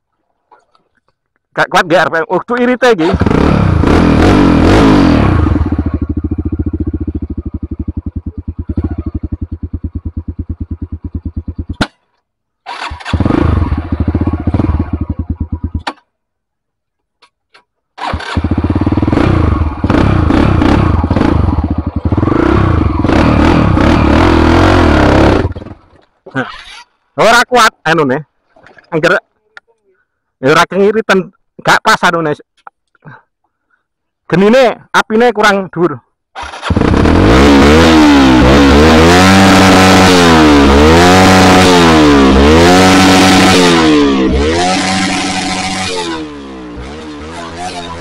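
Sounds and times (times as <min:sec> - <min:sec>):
motorcycle engine revving: 0:03.0 - 0:11.9, 0:12.6 - 0:16.0, 0:18.0 - 0:25.9, 0:36.4 - 0:48.0.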